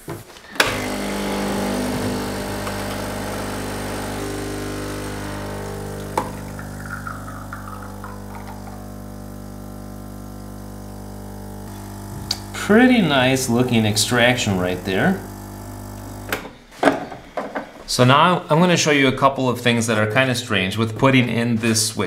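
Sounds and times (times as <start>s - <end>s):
espresso machine pump buzzing: 0.4s - 16.5s.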